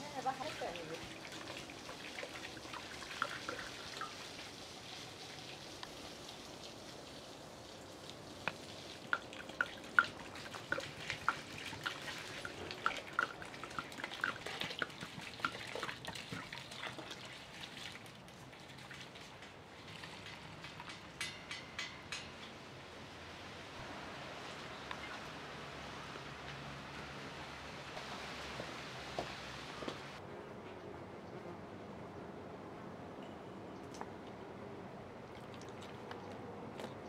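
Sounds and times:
water pouring from jug: 0.2s - 21.2s, 35.3s - 37.0s.

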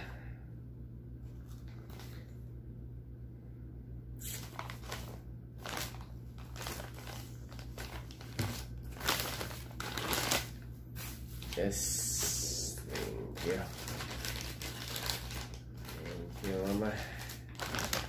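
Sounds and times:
steady low hum: 0.0s - 18.0s
plastic bag crinkling: 4.3s - 18.0s.

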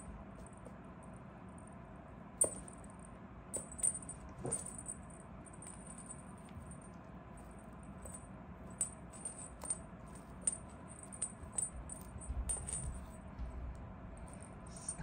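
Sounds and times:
small bell jingling: 7.9s - 13.2s.

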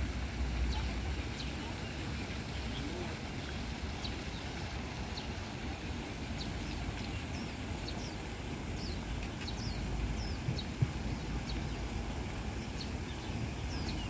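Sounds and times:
water falling from fountains: 0.0s - 14.0s
small birds chirping: 0.6s - 5.4s, 6.3s - 14.0s.

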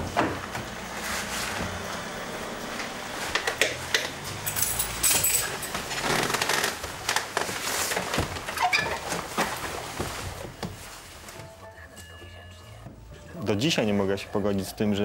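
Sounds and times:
wheelchair clicks and rattles: 2.7s - 10.8s.

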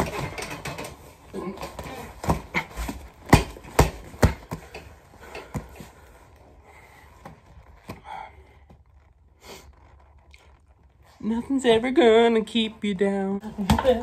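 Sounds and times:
fists hitting punching bag: 0.0s - 5.9s, 13.5s - 14.0s.

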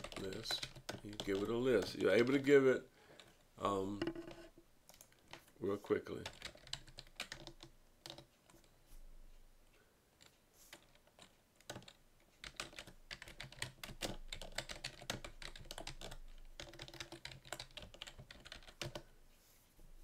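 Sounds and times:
typing on computer keyboard: 0.0s - 2.4s, 6.2s - 8.7s, 10.2s - 19.1s.

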